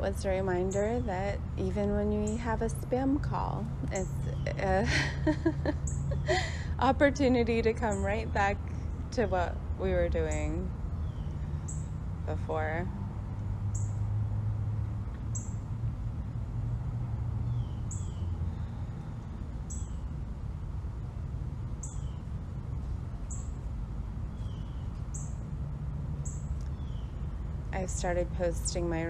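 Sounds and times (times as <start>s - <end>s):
steady low rumble: 0.0s - 29.0s
birds chirping: 0.2s - 9.6s, 10.2s - 12.9s, 17.4s - 18.8s, 19.6s - 20.2s, 21.1s - 22.5s, 23.1s - 25.5s, 26.2s - 29.0s.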